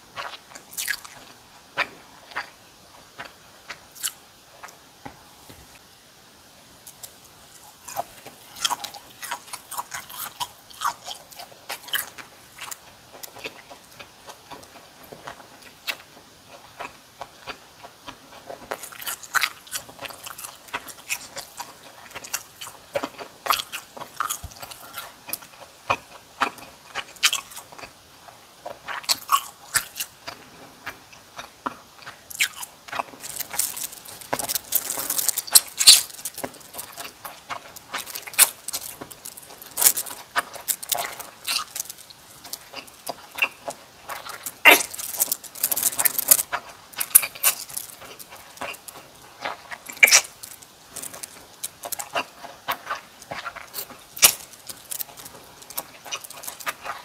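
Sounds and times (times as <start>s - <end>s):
chewing and crunching food: 0.0s - 5.8s, 6.8s - 57.0s.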